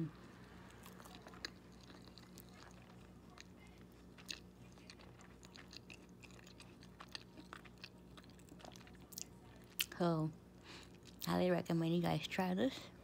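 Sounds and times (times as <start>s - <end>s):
chewing crunchy toast: 0.3s - 11.3s.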